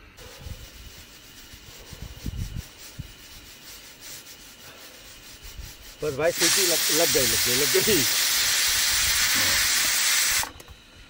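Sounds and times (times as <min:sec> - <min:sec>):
hands rubbing together: 0:00.2 - 0:08.0
camp stove hissing: 0:03.2 - 0:10.7.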